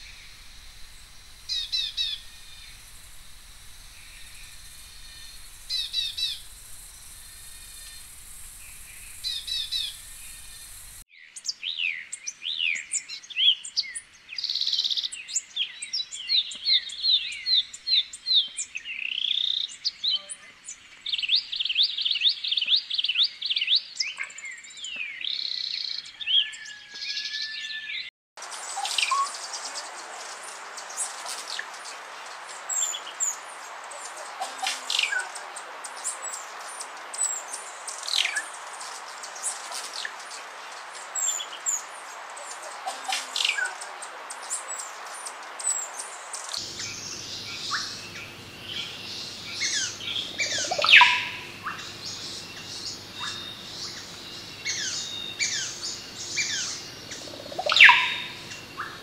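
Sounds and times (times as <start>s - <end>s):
bird whistling sweeps: 0.0s - 11.0s, 46.5s - 59.0s
steady hiss: 0.0s - 11.0s, 28.4s - 59.0s
songbirds chirping: 0.0s - 59.0s.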